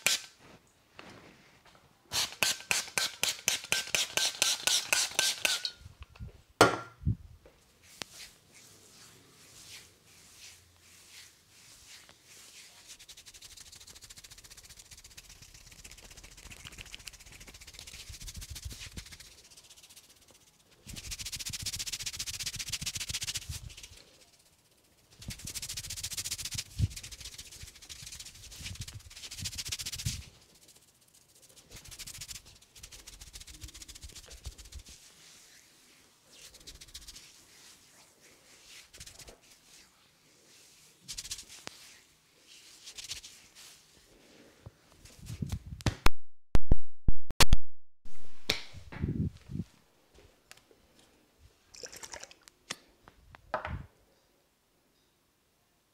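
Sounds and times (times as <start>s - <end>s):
fingers rustling through hair: 7.8s - 45.6s.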